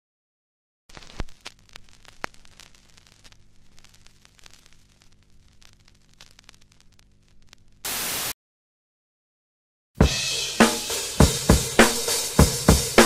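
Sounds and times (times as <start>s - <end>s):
static crackle with pops: 0.9s - 8.3s
faint hiss: 0.9s - 8.4s.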